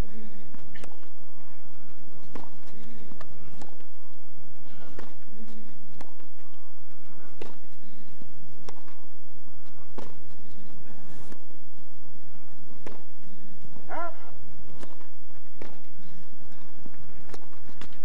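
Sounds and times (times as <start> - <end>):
tennis racquets hitting ball: 2.2 - 3.8, 4.8 - 6.3, 7.3 - 7.8, 9.6 - 10.6, 12.8 - 13.2, 14.7 - 15.9.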